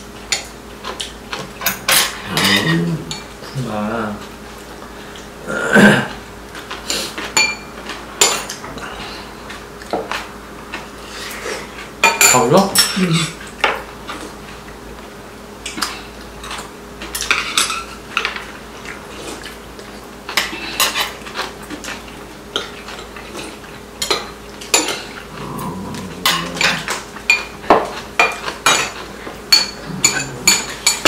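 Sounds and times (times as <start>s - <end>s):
cutlery clicking on ceramic bowls: 24.0s - 31.0s.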